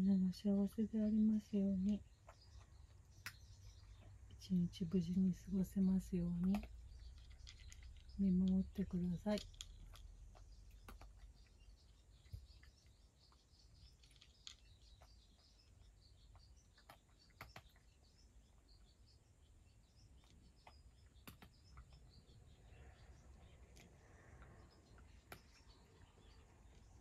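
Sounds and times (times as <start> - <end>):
cat crunching dry kibble: 6.5 - 8.1, 13.8 - 15.0.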